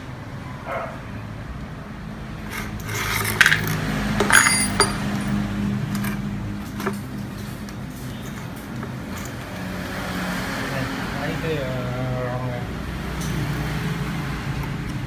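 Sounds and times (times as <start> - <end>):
metal bolts clinking on tile: 2.5 - 6.2.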